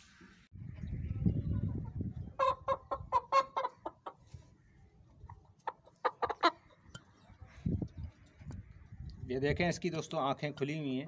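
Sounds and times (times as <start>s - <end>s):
chicken squawking: 1.5s - 4.2s, 5.2s - 6.8s.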